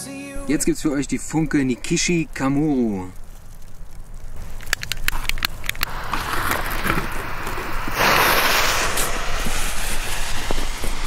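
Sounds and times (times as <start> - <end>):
fuse hissing and crackling: 0.3 - 11.0
sharp clicks: 2.3 - 7.6.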